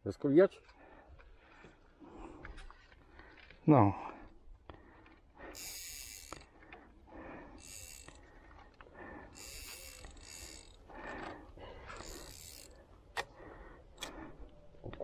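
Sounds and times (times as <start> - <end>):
fishing reel gears whirring: 5.5 - 6.6, 7.4 - 8.3, 9.2 - 12.8.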